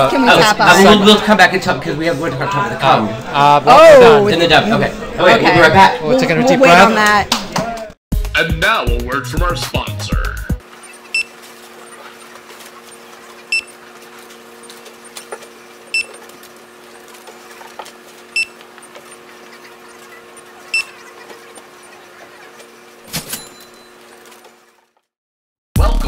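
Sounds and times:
click and ding: 23.2 - 24.0.

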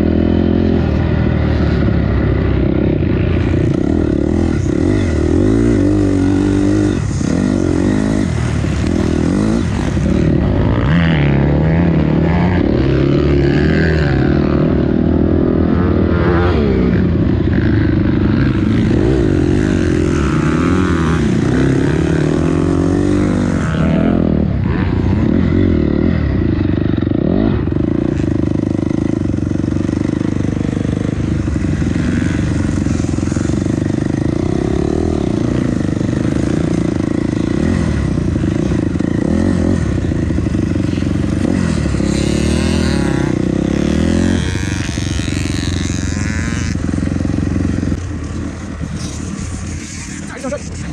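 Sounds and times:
dirt bike engine revving: 0.0 - 50.9.

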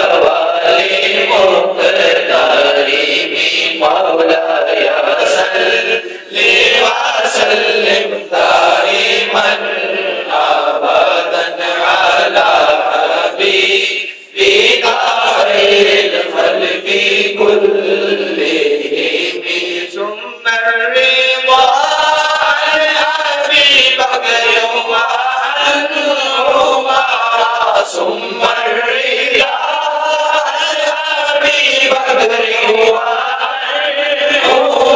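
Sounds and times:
man singing into a microphone: 0.0 - 34.9.

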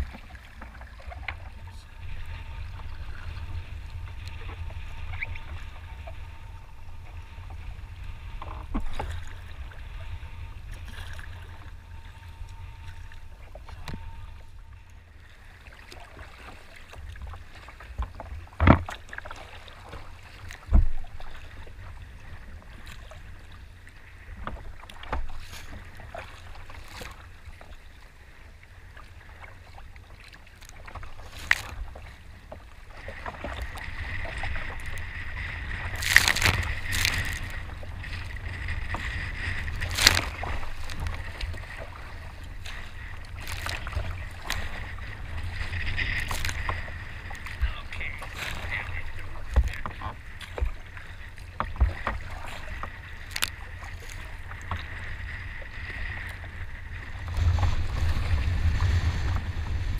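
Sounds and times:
water slapping against boat: 0.0 - 59.9
water sloshing around kayak: 0.0 - 59.9
breaking waves rushing: 30.7 - 59.9.

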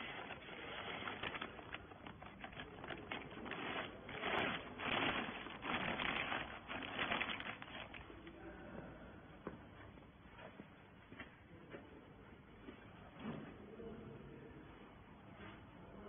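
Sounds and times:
plastic bag crinkling: 0.0 - 8.3.

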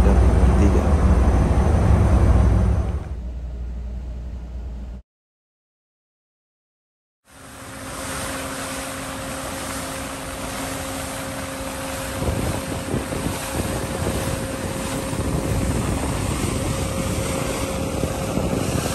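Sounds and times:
bow wave water rushing: 0.0 - 3.2, 7.3 - 18.9
wind on microphone: 7.8 - 18.9.

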